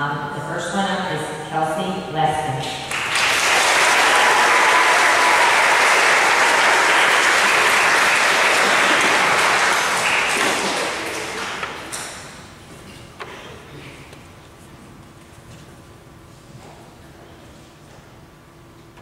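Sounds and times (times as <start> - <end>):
audience applauding: 2.9 - 12.3.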